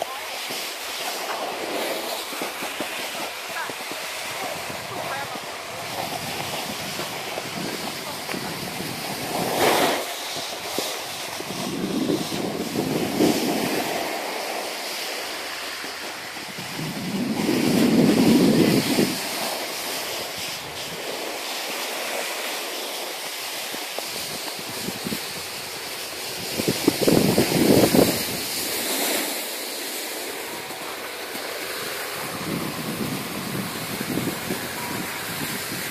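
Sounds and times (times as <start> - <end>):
scraping slide over snow: 0.0 - 35.9
wind noise on microphone: 3.0 - 14.5, 15.9 - 21.2, 24.0 - 29.3, 30.2 - 35.9.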